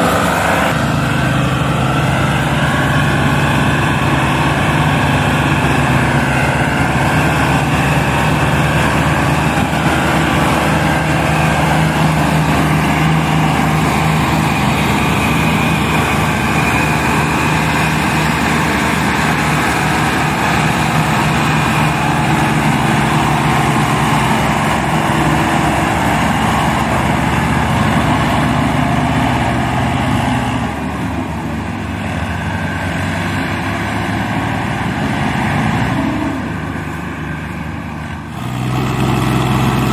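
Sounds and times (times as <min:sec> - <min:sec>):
tractor diesel engine straining: 0:00.0 - 0:39.9.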